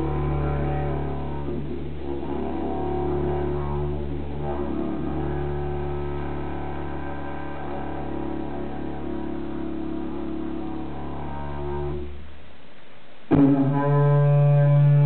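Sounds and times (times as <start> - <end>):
didgeridoos droning: 0.0 - 12.2, 13.3 - 15.0.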